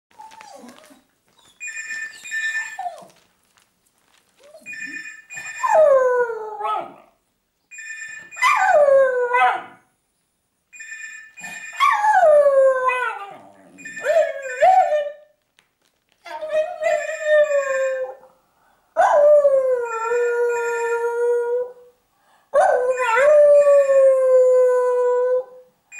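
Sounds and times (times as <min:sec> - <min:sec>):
telephone ringing: 0:01.6 - 0:02.9, 0:04.6 - 0:05.8, 0:07.7 - 0:08.4, 0:10.7 - 0:12.0, 0:13.8 - 0:15.0, 0:16.8 - 0:18.2.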